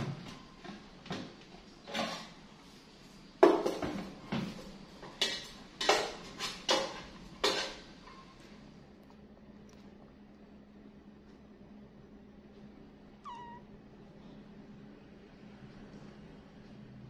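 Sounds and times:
metal kitchenware clanking: 5.0 - 7.9.

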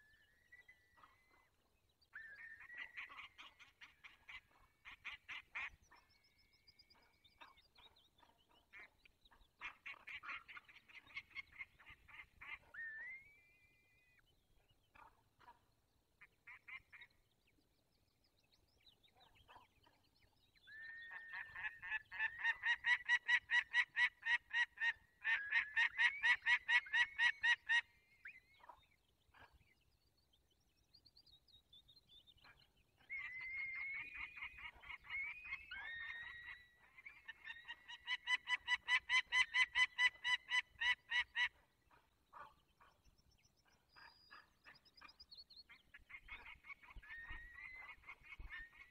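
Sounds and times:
falcons calling: 20.8 - 27.8.

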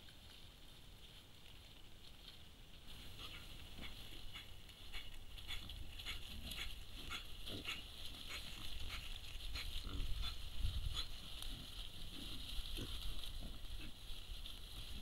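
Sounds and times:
wild boars grunting: 3.0 - 14.1.

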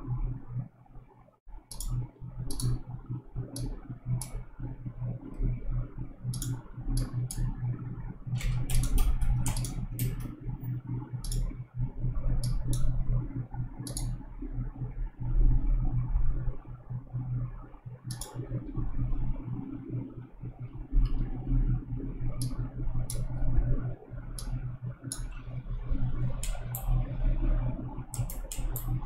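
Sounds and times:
steady low hum: 0.0 - 29.0
mouse and keyboard clicks: 8.4 - 10.4, 18.1 - 18.4, 28.1 - 29.0.

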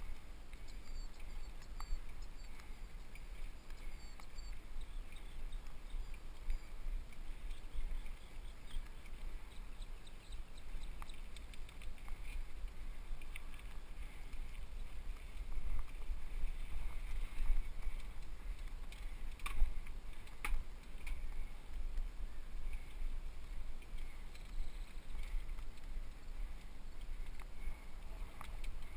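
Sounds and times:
low rumble of bike riding: 0.0 - 28.9
bike clicks and rattles: 10.8 - 22.0.

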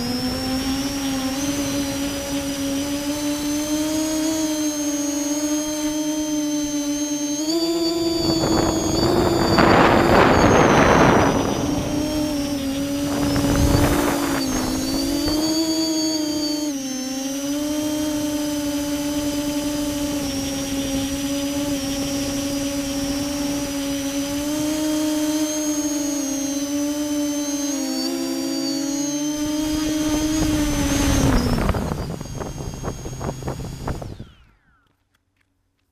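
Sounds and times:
drone motors humming: 0.0 - 35.2
rushing air: 7.9 - 16.5, 29.2 - 34.4.

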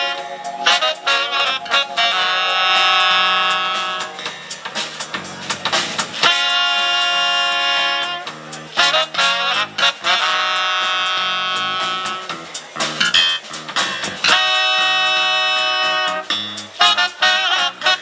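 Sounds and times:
horns holding long notes: 0.0 - 4.3, 6.2 - 12.3
punchy horn stabs: 0.0 - 4.4, 6.2 - 12.3
drum kit: 0.0 - 18.0
live funk band playing: 0.0 - 18.0.

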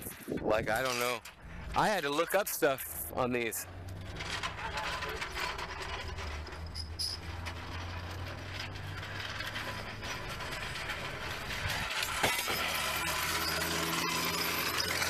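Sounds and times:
metal car jack clicking and rattling: 3.8 - 15.0.

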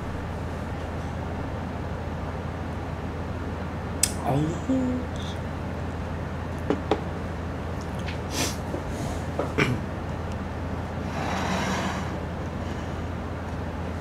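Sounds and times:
steady low hum: 0.0 - 14.0
cup knocking on wooden table: 6.7 - 7.1.

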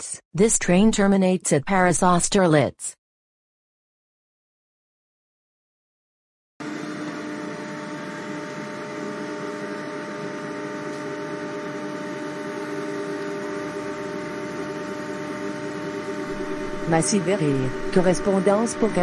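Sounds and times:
electric train hum and rushing: 6.6 - 19.0
constant tones: 12.8 - 19.0.

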